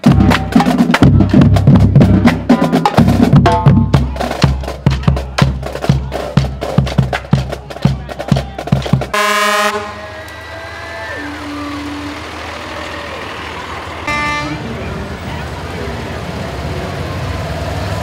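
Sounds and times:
marching drumline playing cadence: 0.0s - 10.1s
truck horn blast: 9.1s - 10.4s, 11.2s - 12.5s, 14.0s - 15.0s
truck engine running past: 9.4s - 18.0s.

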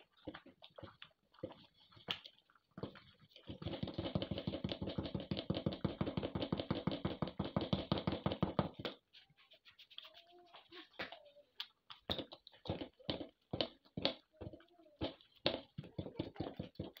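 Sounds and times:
wooden spoon stirring in metal pot: 0.0s - 17.0s.

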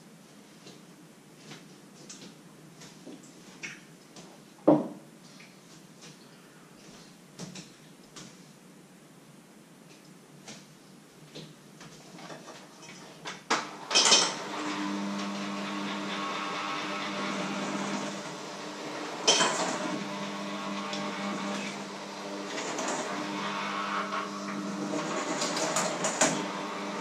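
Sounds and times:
electric mixer motor humming: 13.7s - 27.0s.

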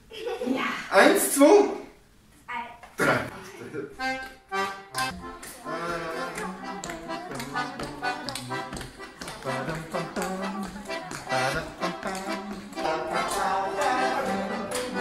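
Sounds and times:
accordion playing lively tune: 4.0s - 15.0s
tapping beats: 4.2s - 15.0s
person singing: 5.2s - 15.0s.

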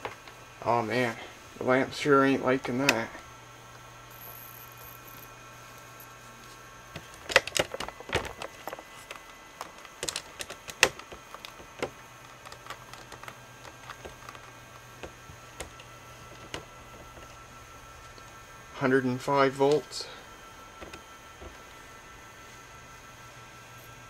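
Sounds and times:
faint high whine: 0.0s - 24.0s
low hum: 0.0s - 24.0s
sharp clicks and crackles: 7.0s - 17.4s.

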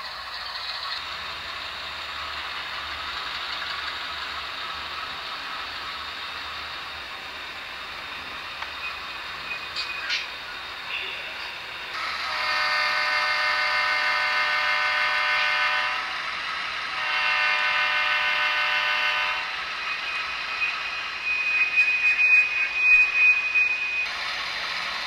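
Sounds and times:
model locomotive diesel horn: 12.0s - 16.2s, 16.9s - 19.6s
high steady tone with rattle: 19.5s - 25.0s.

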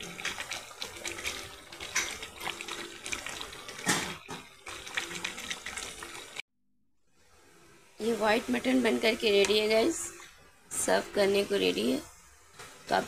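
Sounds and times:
spatula stirring gravy in pot: 0.0s - 6.4s.

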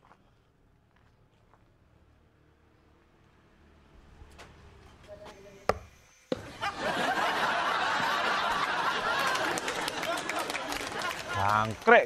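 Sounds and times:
people laughing: 6.4s - 12.0s.

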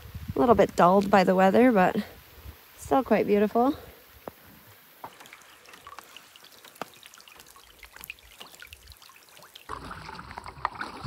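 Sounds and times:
rain falling on a lake: 0.0s - 11.0s.

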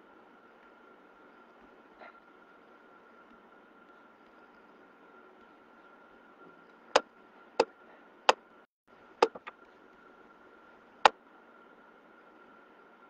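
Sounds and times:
faint steady whine: 0.0s - 13.0s.

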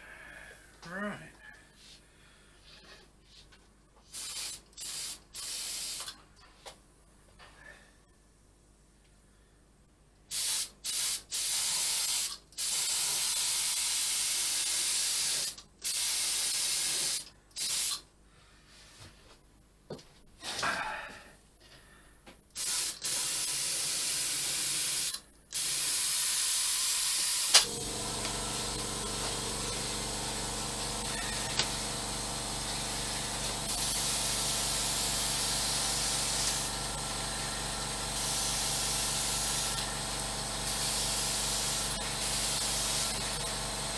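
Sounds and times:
spray gun hissing: 4.1s - 6.1s, 10.3s - 18.0s, 22.6s - 43.8s
air compressor humming: 22.6s - 43.9s.

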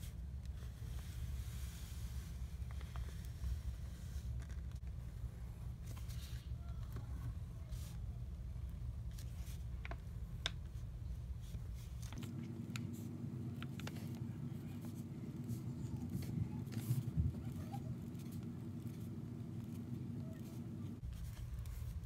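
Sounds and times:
steady low hum: 0.0s - 22.0s
pen scratching on paper: 14.8s - 21.8s.

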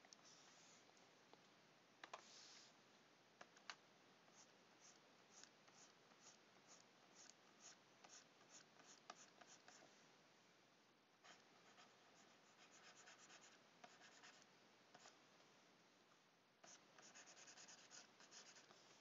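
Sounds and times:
stylus scratching on tablet: 4.3s - 9.9s, 11.3s - 14.4s, 16.7s - 19.0s.

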